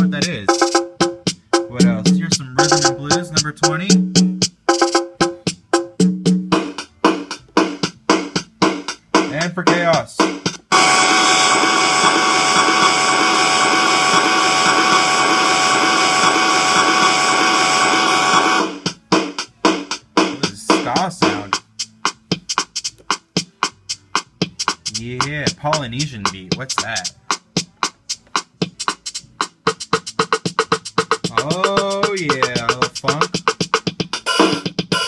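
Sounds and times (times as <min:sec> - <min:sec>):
stuttering glitchy drum hits: 0:10.6 - 0:18.8
buzzing sustained tone: 0:10.7 - 0:18.7.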